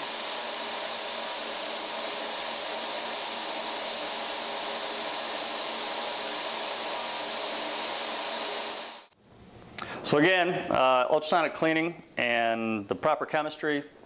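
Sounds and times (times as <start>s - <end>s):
ultrasonic cleaning tank hiss: 0.0s - 9.2s.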